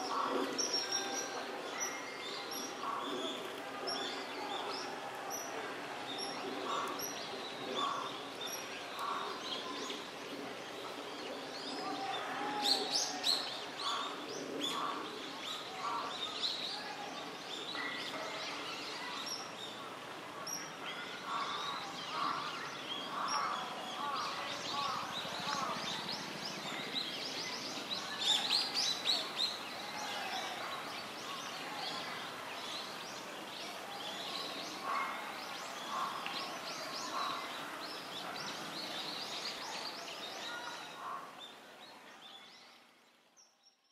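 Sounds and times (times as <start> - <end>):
steady outdoor hiss: 0.0 - 43.9.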